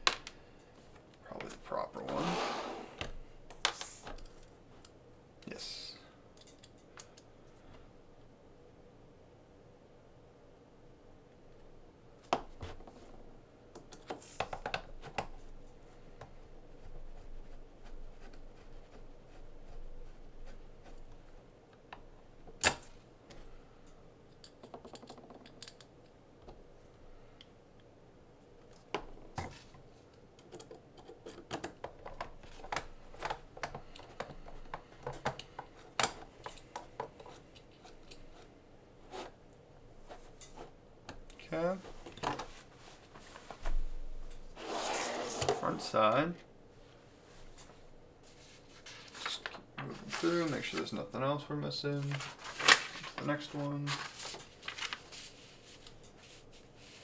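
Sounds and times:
small parts clicking and tapping: 6.3s - 7.3s, 24.3s - 25.9s.

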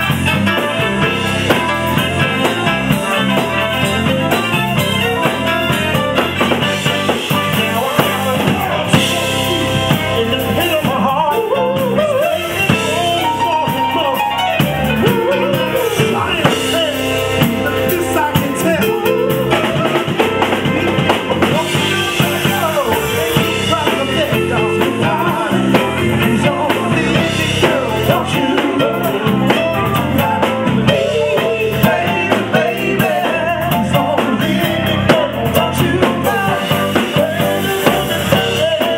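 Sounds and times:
drum kit: 0.0s - 38.9s
electric guitar: 0.0s - 38.9s
people singing into microphones: 7.5s - 14.2s, 15.0s - 38.9s.

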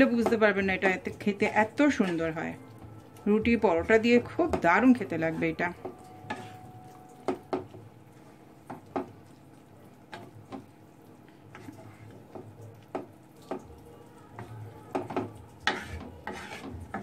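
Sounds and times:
utensil knocking against pan: 14.9s - 17.0s.

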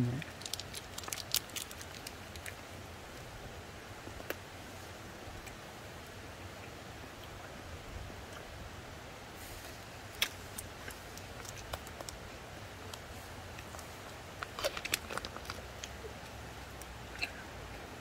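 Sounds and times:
plastic film lid crinkling: 0.3s - 2.6s, 14.4s - 15.9s.

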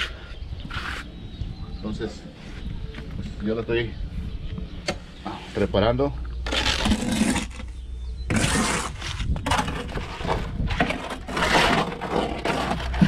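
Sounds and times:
trowel scraping wet mortar: 6.4s - 13.0s.

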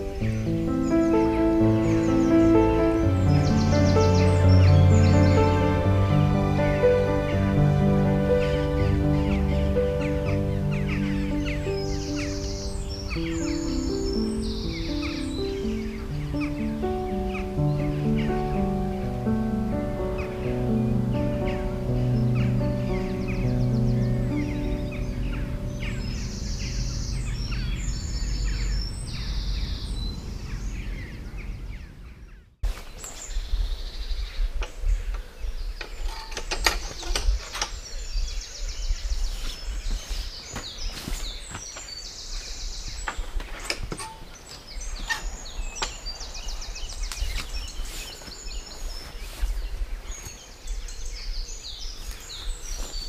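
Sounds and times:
birds singing: 0.0s - 53.0s
wind rumble on microphone: 20.0s - 53.0s.

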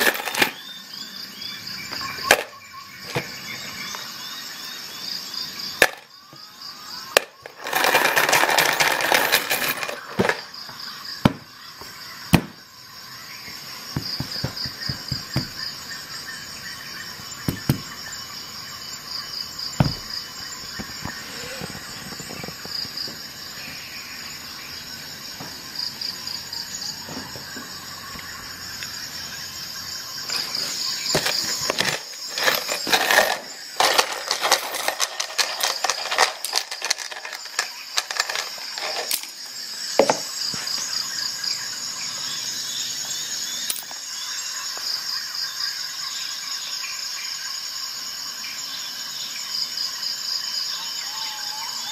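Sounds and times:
nail pieces clattering: 0.0s - 0.6s, 2.3s - 3.2s, 5.8s - 6.1s, 7.2s - 10.5s, 30.3s - 39.4s, 43.7s - 44.0s.

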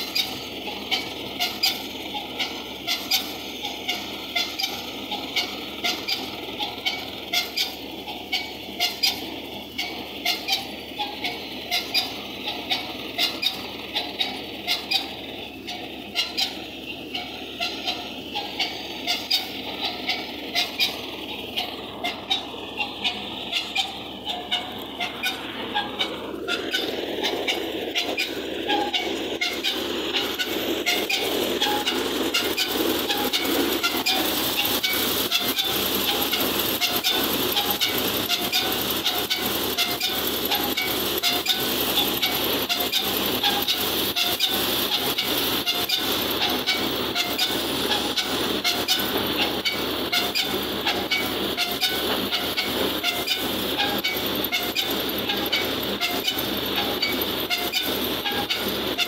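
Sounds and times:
thresher mechanical clatter: 0.0s - 59.0s.

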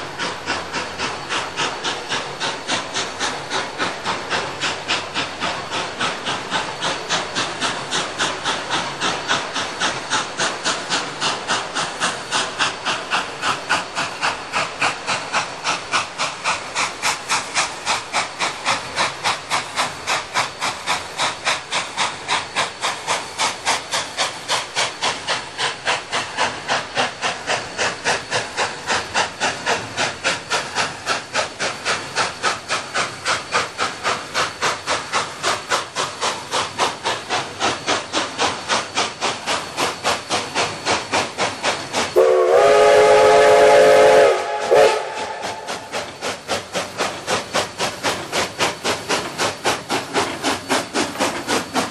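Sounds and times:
steam locomotive chuffing: 0.0s - 51.9s
steam whistle blast: 42.2s - 45.9s.

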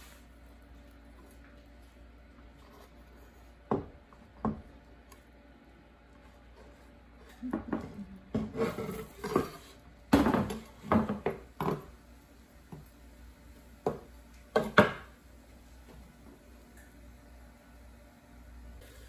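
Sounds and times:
knife scraping on cutting board: 8.4s - 9.8s.

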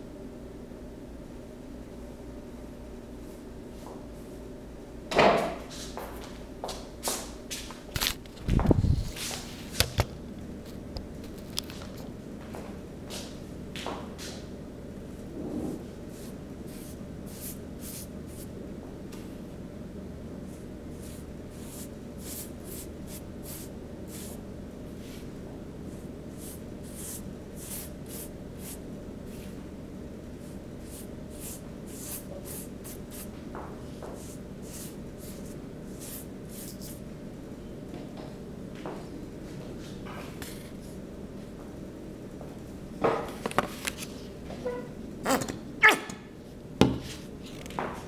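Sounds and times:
paintbrush swishing on cardboard: 16.1s - 18.5s, 21.0s - 24.4s, 25.9s - 29.6s, 30.4s - 33.3s, 34.0s - 37.0s.

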